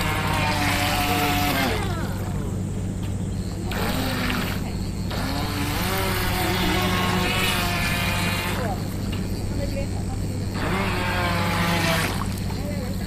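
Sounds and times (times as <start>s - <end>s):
small electric motor whining: 0.0s - 13.0s
steady low hum: 0.0s - 13.0s.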